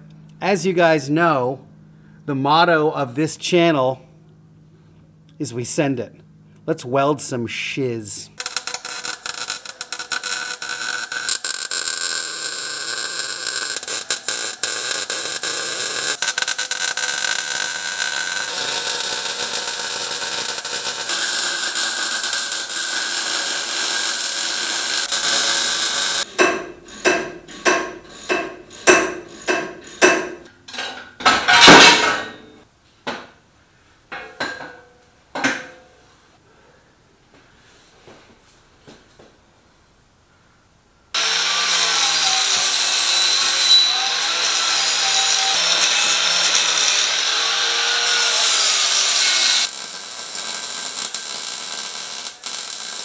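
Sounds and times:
welder crackling sizzle: 8.4 - 26.3, 41.2 - 53.0.

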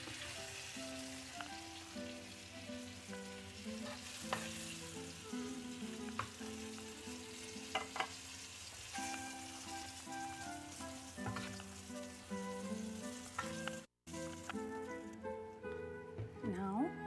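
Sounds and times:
soft background music: 0.0 - 8.2, 8.8 - 17.0
chicken sizzling in oil: 0.0 - 15.5
tongs clinking on pan: 3.8 - 4.7, 7.7 - 8.3.

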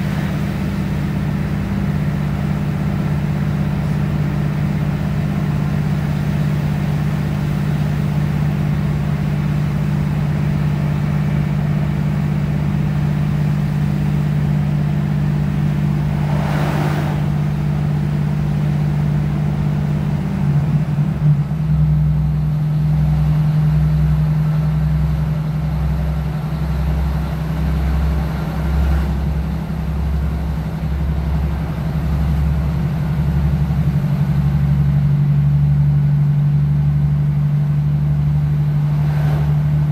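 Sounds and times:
train diesel engine drone: 0.0 - 39.9
brief rushing noise: 16.0 - 17.9.

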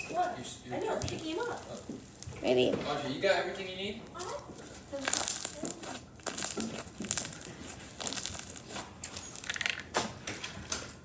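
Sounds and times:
slime squeezed popping: 0.8 - 2.5, 4.9 - 9.8.

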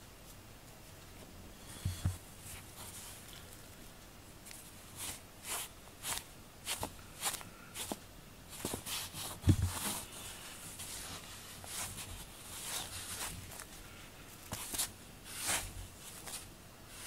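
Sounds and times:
soft rustling scuffs: 4.4 - 17.0.

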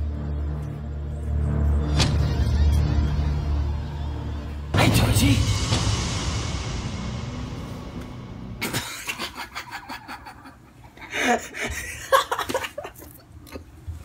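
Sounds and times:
low rumbling music: 0.0 - 10.6
person giggling: 8.6 - 13.6.

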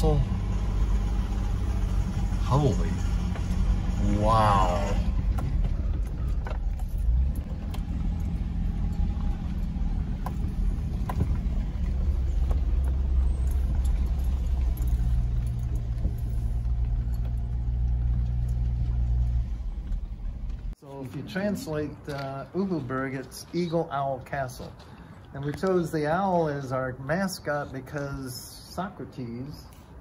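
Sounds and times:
car rumbling over bricks: 0.0 - 20.8.

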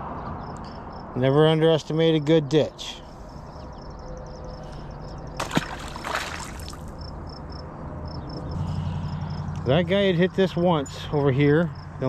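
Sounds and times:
faint high insect chirps: 3.2 - 9.6.

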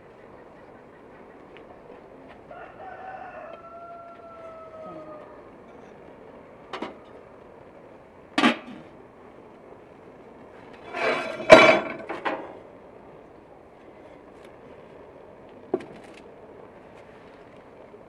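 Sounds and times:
rooster crowing: 2.5 - 5.6.

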